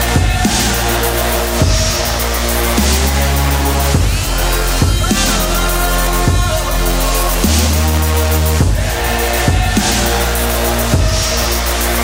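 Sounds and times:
drum hits: 0.0 - 1.0, 1.6 - 2.2, 4.0 - 6.8, 8.6 - 10.2, 11.0 - 11.4
electronic music with heavy bass: 0.0 - 12.0.

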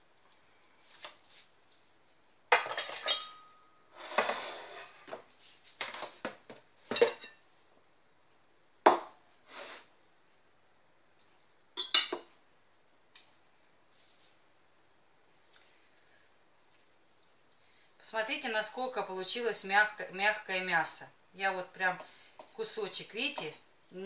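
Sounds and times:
dishes clattering: 2.5 - 3.6, 6.9 - 7.4, 11.8 - 12.3.

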